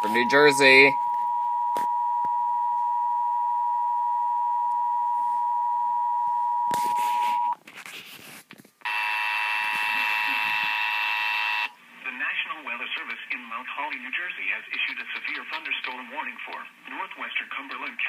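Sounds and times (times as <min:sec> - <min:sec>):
harsh buzzy alert tone: 0:08.9 - 0:11.7.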